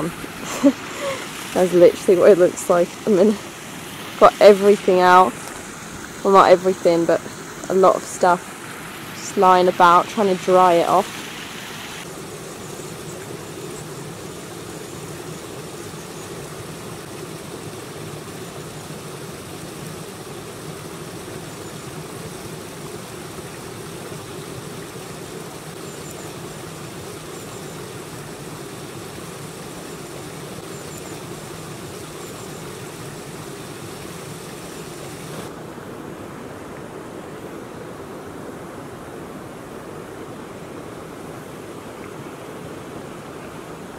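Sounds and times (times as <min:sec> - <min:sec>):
stream cascading over rocks: 0:00.0 - 0:43.9.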